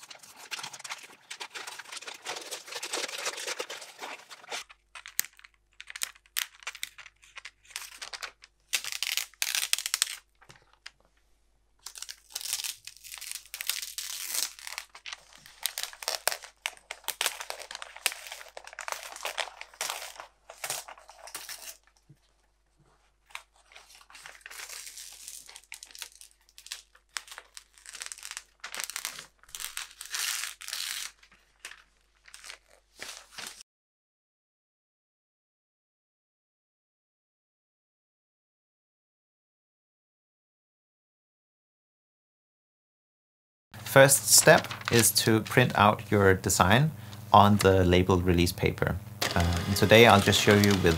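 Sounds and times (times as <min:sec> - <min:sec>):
paper peeling and crackling: 0:00.0 - 0:11.0, 0:11.8 - 0:22.2, 0:23.2 - 0:33.6, 0:43.8 - 0:46.7, 0:49.2 - 0:50.9.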